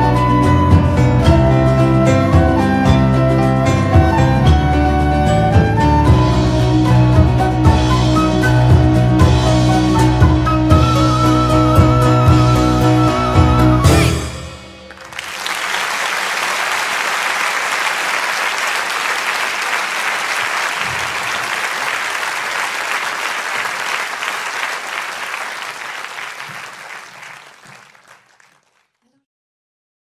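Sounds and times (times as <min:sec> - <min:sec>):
crowd applauding: 0:14.4 - 0:29.0.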